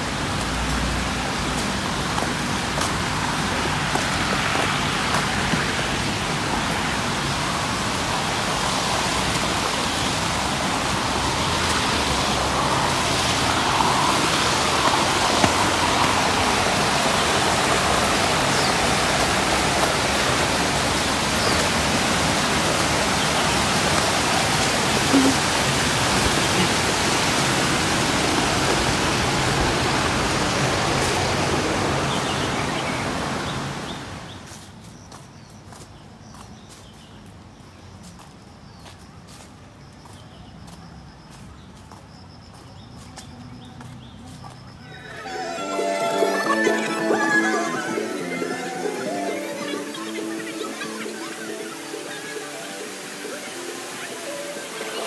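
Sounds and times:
waterfall rushing: 0:00.0 - 0:34.3, 0:44.8 - 0:55.0.

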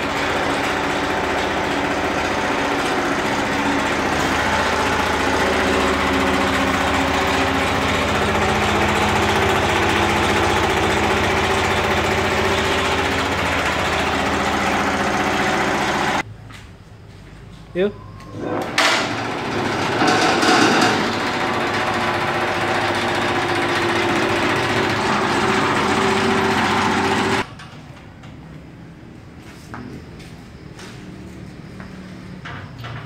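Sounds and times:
shredder motor whirring: 0:00.0 - 0:16.2, 0:18.4 - 0:27.5.

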